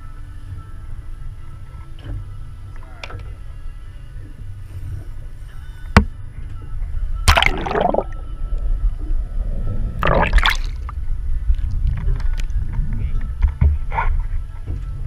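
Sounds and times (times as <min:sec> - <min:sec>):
steady low rumble: 0:06.1 - 0:13.2
water splashing against boat: 0:07.3 - 0:08.2, 0:10.0 - 0:10.9.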